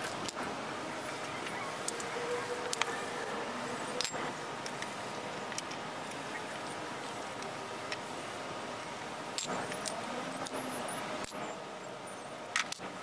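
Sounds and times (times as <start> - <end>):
steady background noise: 0.0 - 13.0
sharp metal clicks and clinks: 9.4 - 10.6.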